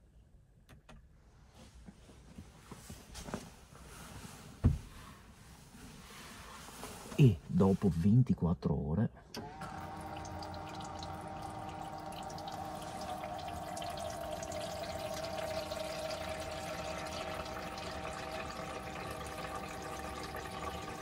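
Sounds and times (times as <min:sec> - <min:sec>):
electric water pump humming: 0:09.4 - 0:21.0
tap water running into sink: 0:09.6 - 0:21.0.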